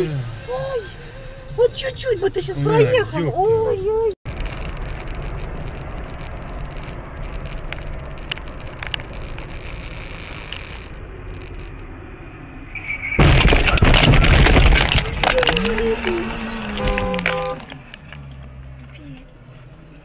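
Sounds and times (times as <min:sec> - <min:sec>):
road and engine noise inside car: 0:00.0 - 0:20.0
vehicle collision crash: 0:12.8 - 0:17.7.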